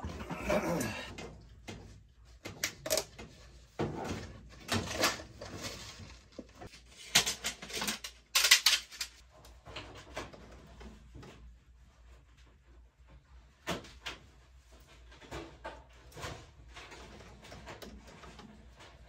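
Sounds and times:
tools and metal parts clanking: 2.4 - 9.9.

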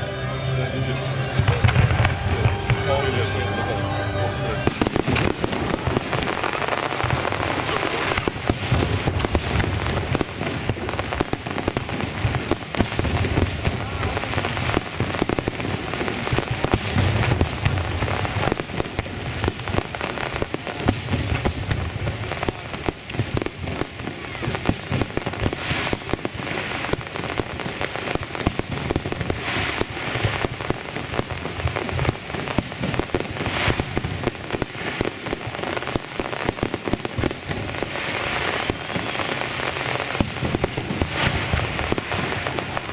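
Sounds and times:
fireworks crackling: 0.0 - 42.9
firework shells booming: 4.6 - 42.9.

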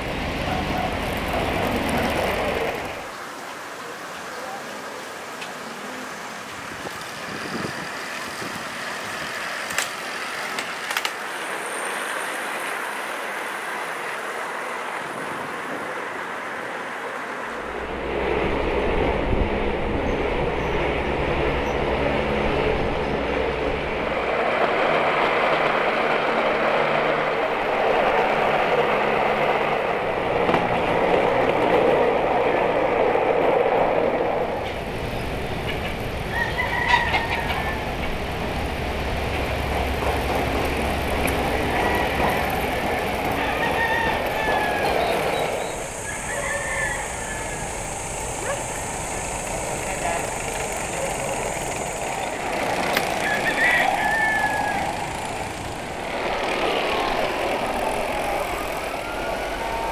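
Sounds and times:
trolley wheels rolling on rails: 0.0 - 59.9.

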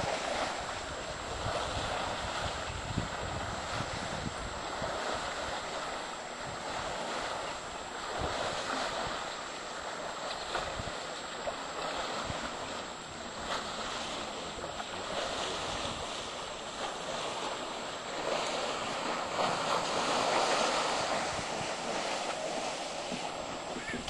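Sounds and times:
waterfall roaring: 23.8 - 24.0.

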